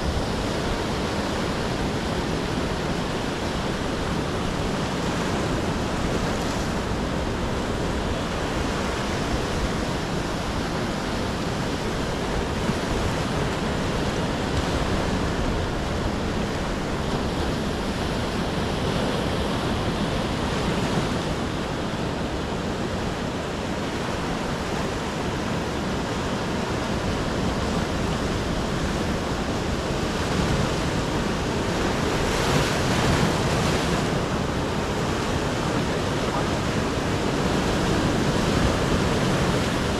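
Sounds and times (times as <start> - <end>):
ocean waves breaking: 0.0 - 39.9.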